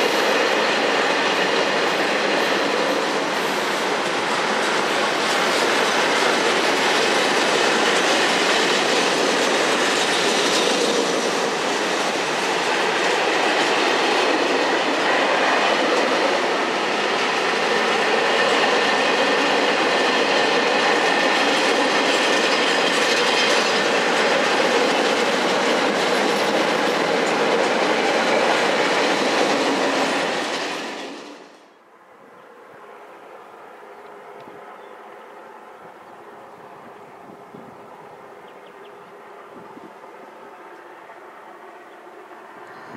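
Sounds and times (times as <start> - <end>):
freight train wheels on track: 0.0 - 42.9.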